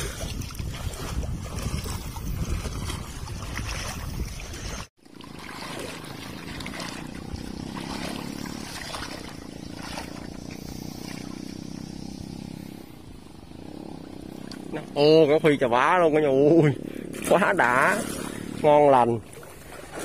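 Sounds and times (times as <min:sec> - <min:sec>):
water: 0:00.0 - 0:20.0
wind: 0:00.0 - 0:20.0
small engine running: 0:04.7 - 0:19.0.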